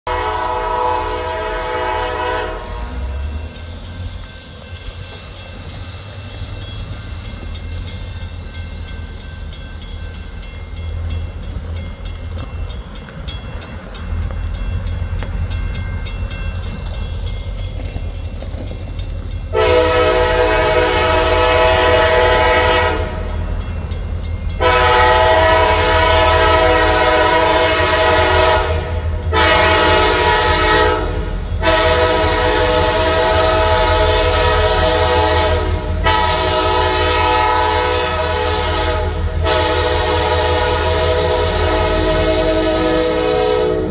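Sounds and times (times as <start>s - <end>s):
locomotive air horn: 0.0s - 3.2s, 19.5s - 23.3s, 24.6s - 43.9s
locomotive rumble: 0.1s - 43.9s.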